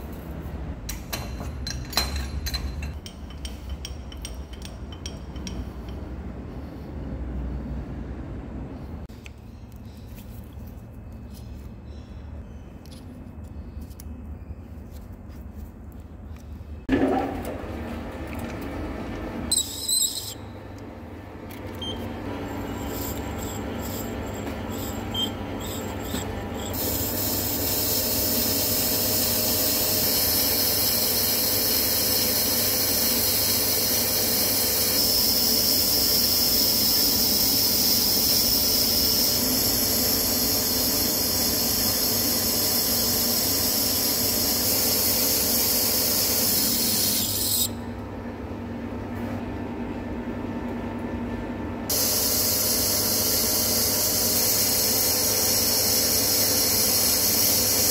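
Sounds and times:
high squealing hiss: 19.5 - 20.4, 22.7 - 47.8, 51.9 - 57.9.

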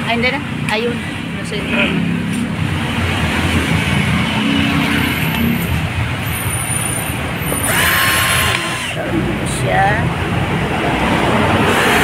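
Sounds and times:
engines humming: 0.0 - 12.0
cordless drill whirring: 7.4 - 9.0.

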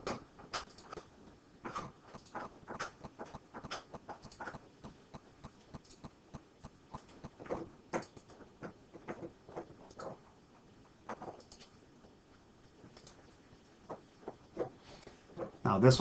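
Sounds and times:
computer mouse clicking: 0.0 - 1.1, 1.7 - 10.2, 11.1 - 11.7, 12.9 - 13.3.

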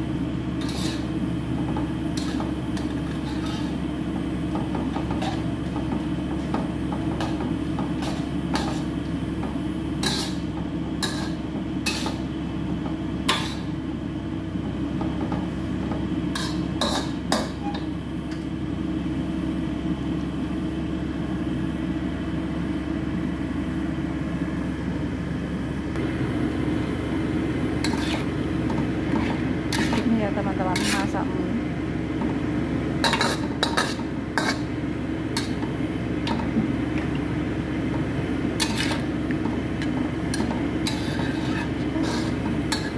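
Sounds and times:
metal spatula scraping a wok: 0.6 - 1.1, 2.2 - 3.8, 5.2 - 5.6, 8.0 - 8.9, 10.0 - 12.2, 13.3 - 13.7, 16.3 - 17.8, 27.8 - 28.3, 29.0 - 31.2, 33.0 - 34.7, 38.6 - 39.1, 40.3 - 42.9.

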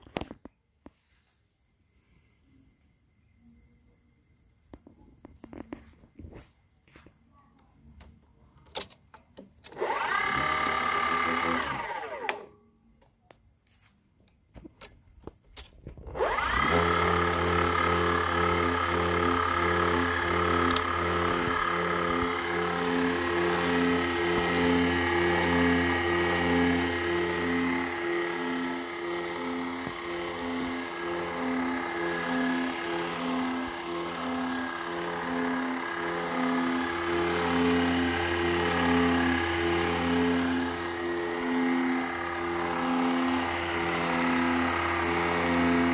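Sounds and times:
motor generator humming and whining: 7.9 - 12.6, 14.6 - 45.9.

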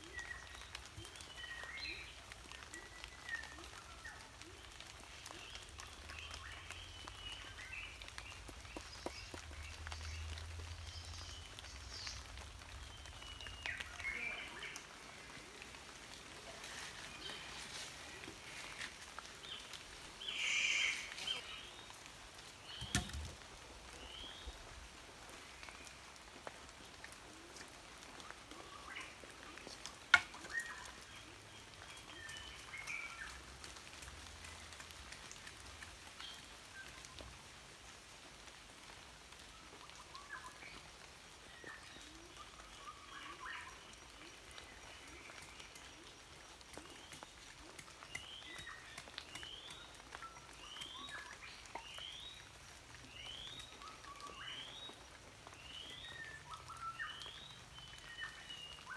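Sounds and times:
birds chirping: 41.5 - 58.9.

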